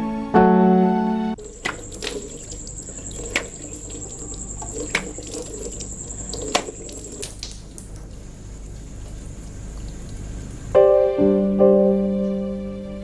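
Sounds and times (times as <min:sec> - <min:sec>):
sharp water splashes: 0:01.4 - 0:08.1
tap water running into basin: 0:01.4 - 0:08.3.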